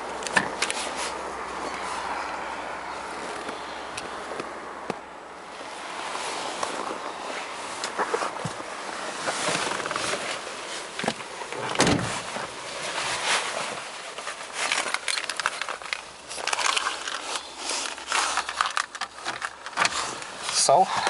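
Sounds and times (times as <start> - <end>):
rustling handling noise: 5.6 - 20.9.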